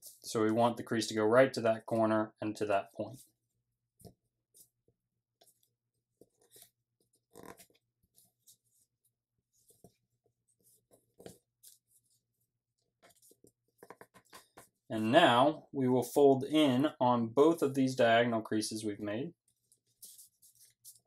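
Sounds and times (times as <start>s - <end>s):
paper being folded and creased: 19.4s - 21.0s.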